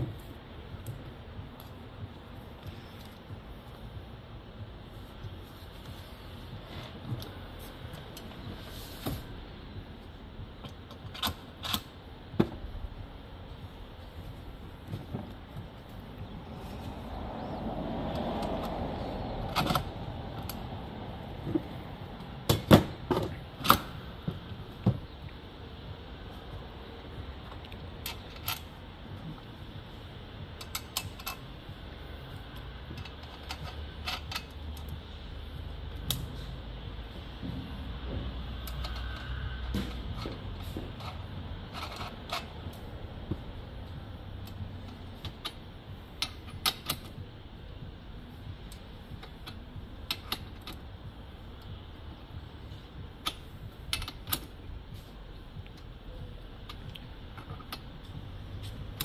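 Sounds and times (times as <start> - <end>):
steady low hum: 0.0 - 59.0
parts clicking and knocking: 5.2 - 13.0, 18.1 - 25.9, 27.4 - 35.2, 37.3 - 59.0
clicks of parts being handled: 30.6 - 31.5, 32.5 - 35.0, 38.6 - 42.8, 48.7 - 50.8, 53.2 - 55.9.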